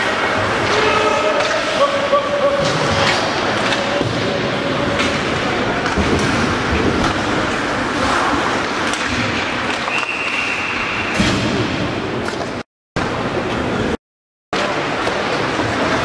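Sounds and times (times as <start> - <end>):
skating rush: 0.0 - 12.6
crowd noise: 0.0 - 14.0, 14.6 - 16.0
high whistle tone: 9.8 - 11.2.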